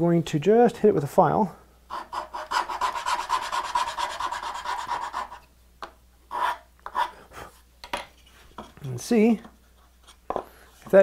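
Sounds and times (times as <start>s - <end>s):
hand file rasping on wood: 1.9s - 5.4s.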